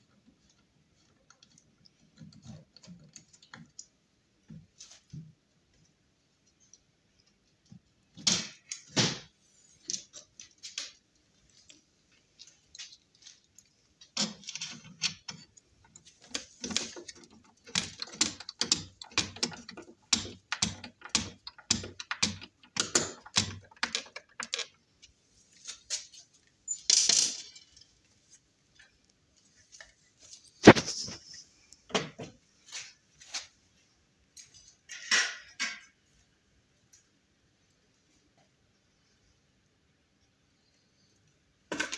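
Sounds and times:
screwdriver clicking and rattling: 14.1 - 24.8.

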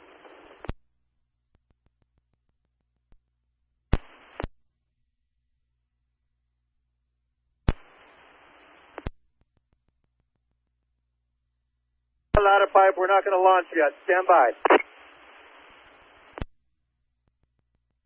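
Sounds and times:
radio hiss burst: 7.7 - 9.1, 12.4 - 16.4
radio squelch click: 8.8 - 9.2, 12.4 - 16.5.

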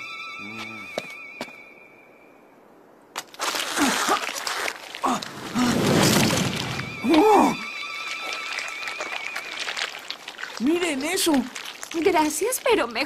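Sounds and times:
faint wavering musical tone: 0.0 - 2.7, 6.8 - 9.5
cartoon cracking and breaking: 3.2 - 7.3.

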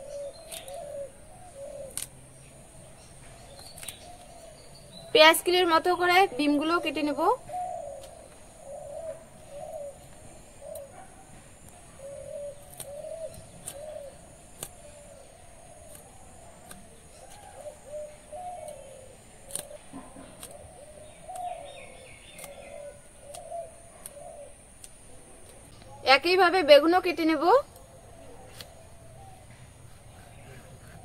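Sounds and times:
bird cooing: 0.0 - 2.1, 4.2 - 26.1, 27.3 - 31.0
beans cut on a blade clicking: 0.3 - 1.0, 1.8 - 2.2, 3.5 - 4.4, 10.7 - 10.9, 12.5 - 15.0, 15.7 - 25.6.

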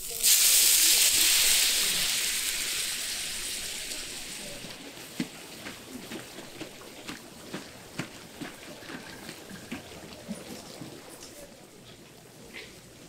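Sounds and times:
water hissing in hot oiled pan: 0.0 - 5.0.

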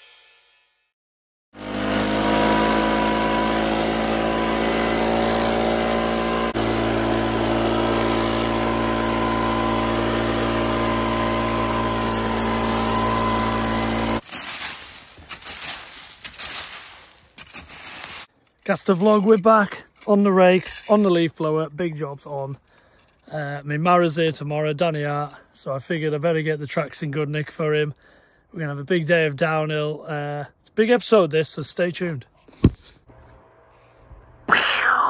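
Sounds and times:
leaf blower running: 1.6 - 16.8.

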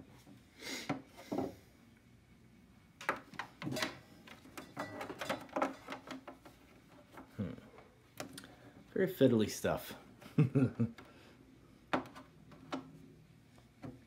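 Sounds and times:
plastic clicks and rustles: 3.0 - 7.3.

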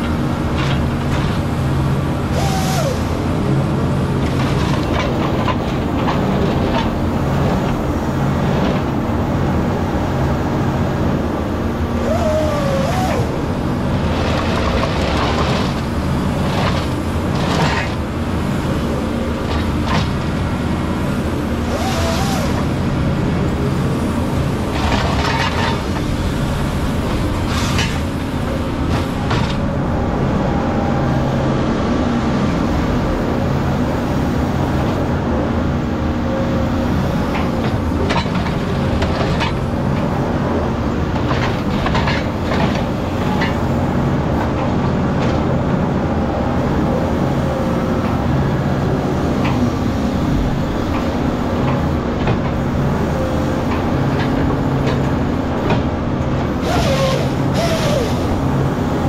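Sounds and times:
diesel engine running: 0.0 - 59.0
hissing rasping processor bursts: 56.6 - 58.4.

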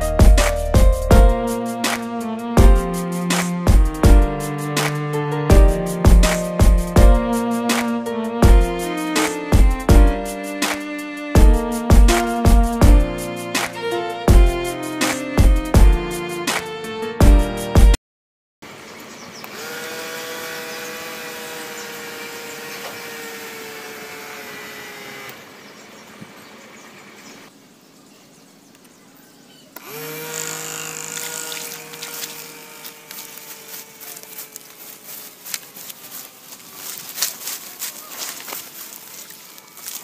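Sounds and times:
small electric motors whining: 19.3 - 26.4, 29.8 - 37.6
clicks and crackle: 31.1 - 40.0.

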